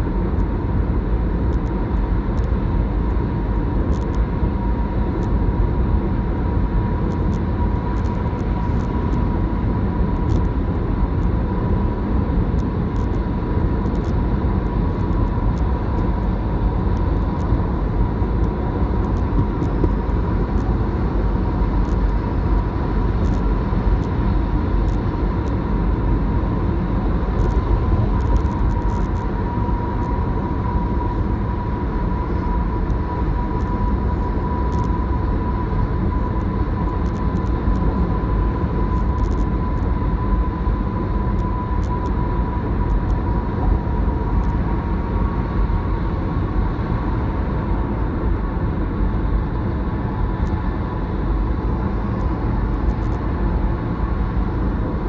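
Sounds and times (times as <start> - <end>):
car road and tyre noise: 0.0 - 55.0.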